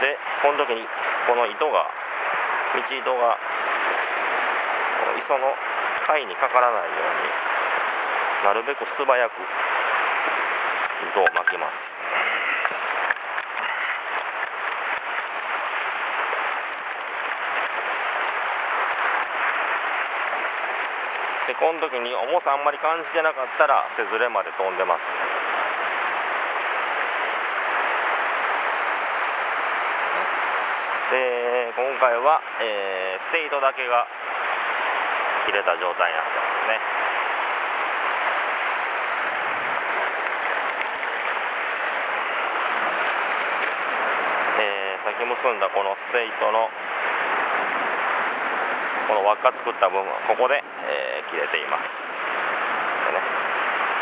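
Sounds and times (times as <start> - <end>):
surf washing over rocks: 0.0 - 54.0.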